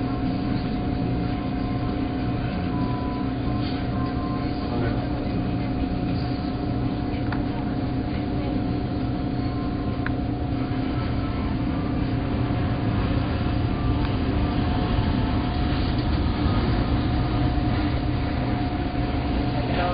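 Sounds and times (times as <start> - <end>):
constant hum: 0.0 - 19.9
jet engines rumbling: 12.5 - 19.9.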